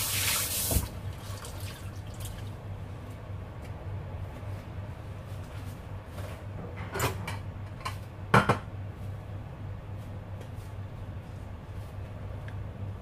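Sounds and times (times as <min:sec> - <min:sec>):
steady low hum: 0:00.8 - 0:13.0
kitchen knocks and clatter: 0:06.6 - 0:08.7.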